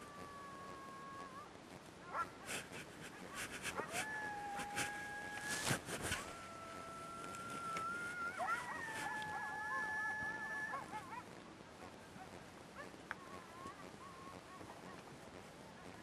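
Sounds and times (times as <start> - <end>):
animal whining: 3.3 - 11.3.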